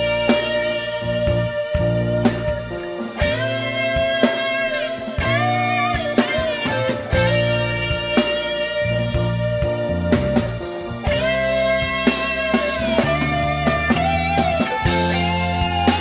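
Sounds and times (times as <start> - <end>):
bass guitar: 0.0 - 16.0
drums: 0.0 - 16.0
electric guitar lead: 0.0 - 16.0.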